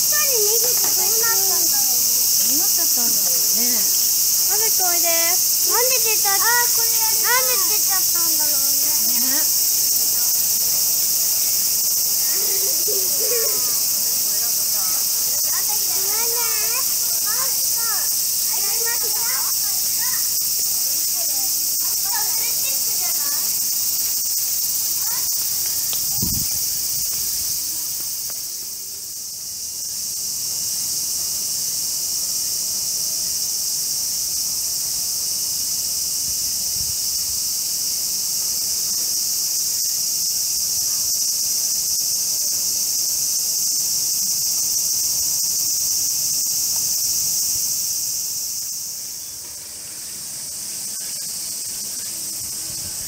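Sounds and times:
cicadas buzzing: 0.0 - 53.0.

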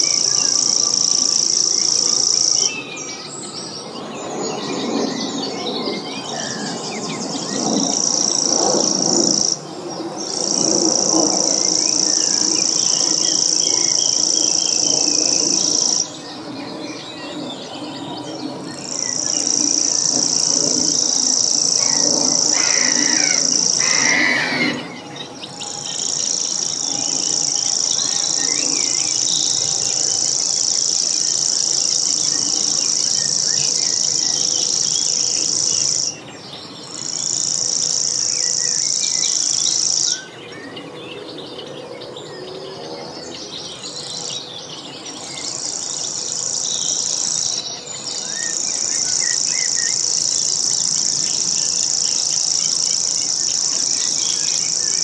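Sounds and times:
bird reeling trill: 0.0 - 5.9, 10.2 - 36.2.

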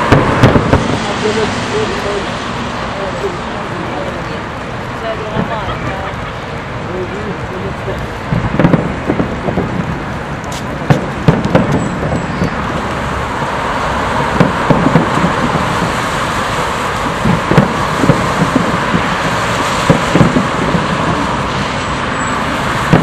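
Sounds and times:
fireworks booming and cracking: 0.0 - 23.0
steady rushing noise: 0.0 - 23.0.

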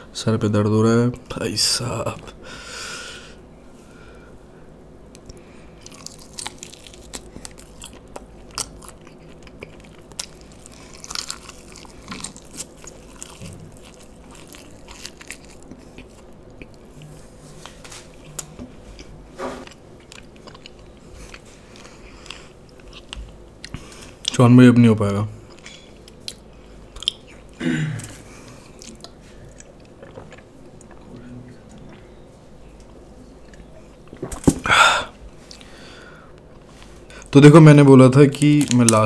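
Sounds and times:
person chewing food: 5.1 - 24.3, 25.5 - 31.2, 35.3 - 37.3.

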